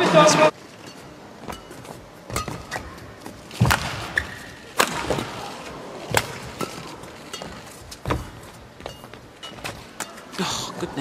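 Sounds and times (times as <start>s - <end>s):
shoes squeaking on court: 0.6s - 10.3s
racket hitting shuttlecock: 1.4s - 5.5s, 6.1s - 8.3s.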